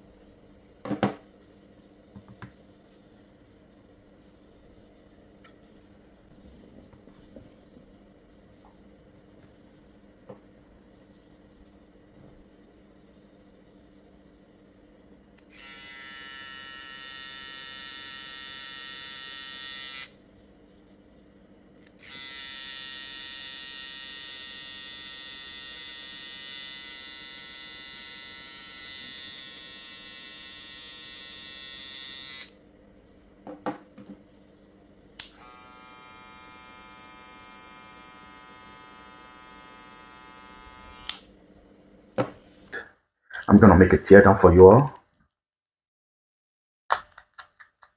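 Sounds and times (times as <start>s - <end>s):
hair trimmer buzzing: 15.4s - 20.2s, 21.9s - 32.6s, 35.2s - 41.3s.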